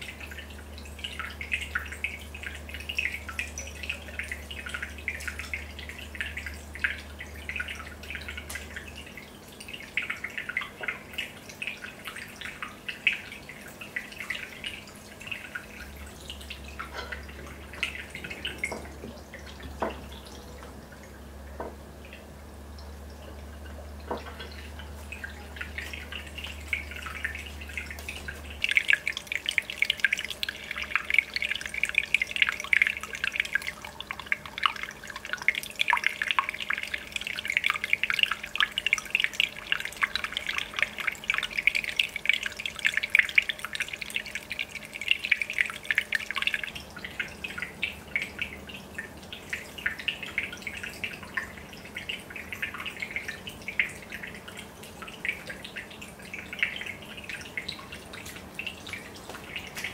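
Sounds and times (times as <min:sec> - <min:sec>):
aquarium bubbles popping: 0:00.0 - 0:59.9
water trickling: 0:00.0 - 0:59.9.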